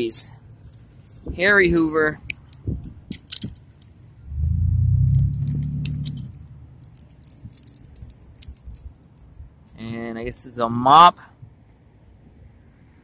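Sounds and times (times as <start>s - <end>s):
loud low rumble: 4.3s - 6.7s
plastic bag crinkling: 6.8s - 9.1s.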